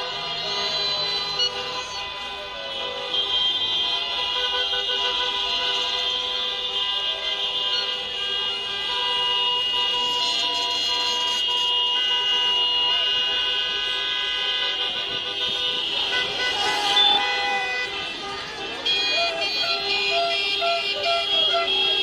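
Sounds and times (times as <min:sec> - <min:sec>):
car horns honking: 0:00.0 - 0:22.0.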